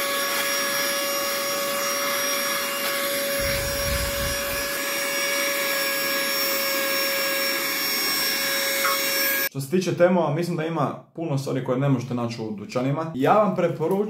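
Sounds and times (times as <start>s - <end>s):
handheld vacuum cleaner whining: 0.0s - 9.5s.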